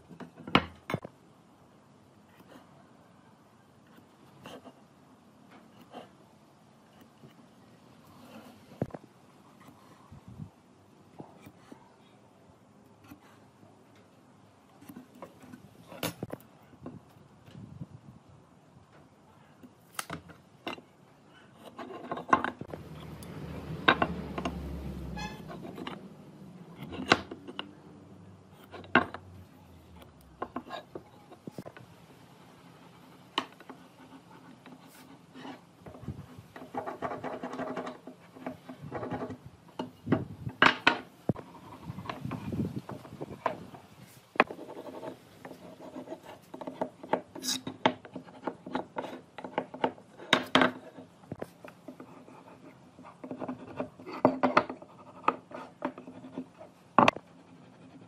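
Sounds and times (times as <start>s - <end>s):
gauge scraping along board: 21.4s - 27.8s.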